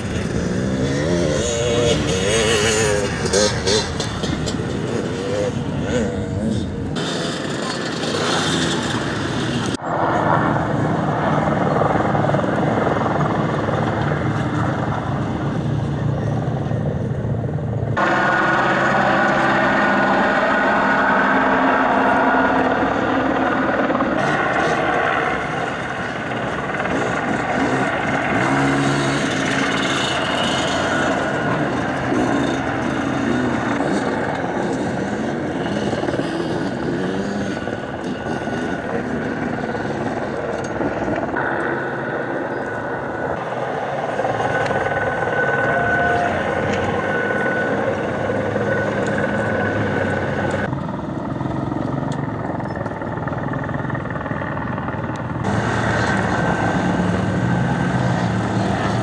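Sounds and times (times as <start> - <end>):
dirt bike engines revving: 0.0 - 59.0.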